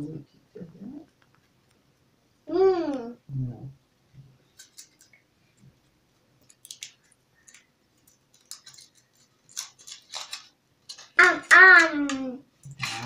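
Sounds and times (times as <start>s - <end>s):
foil wrapper crinkling: 4.6s - 5.2s, 6.4s - 12.3s.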